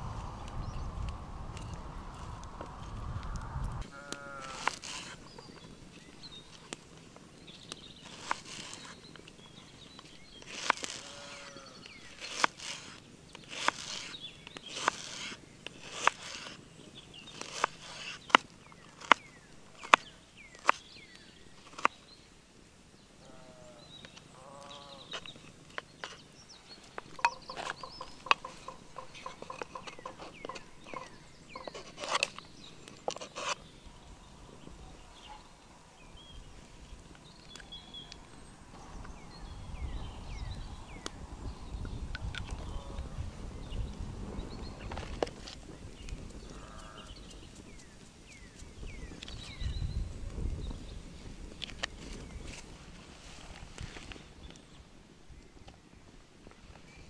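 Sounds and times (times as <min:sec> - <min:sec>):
sharp knocks and cracks: 0:27.0 - 0:32.4.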